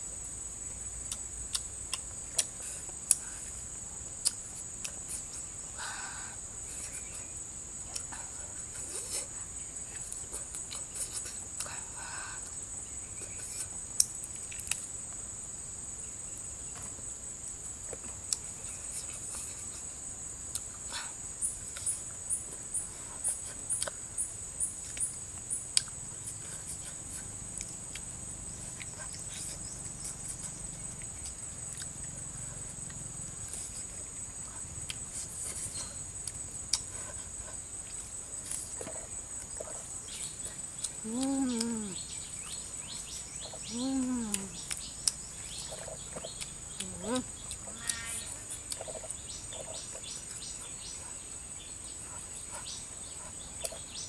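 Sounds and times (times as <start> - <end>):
insects droning: 0.0 - 54.0
tearing and chewing food: 48.6 - 50.4.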